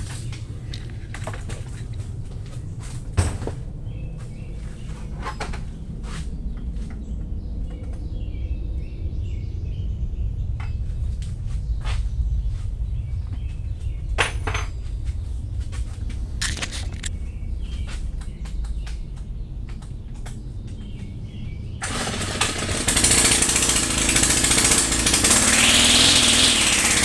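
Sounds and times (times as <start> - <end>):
tools clicking and knocking: 16.4 - 17.1.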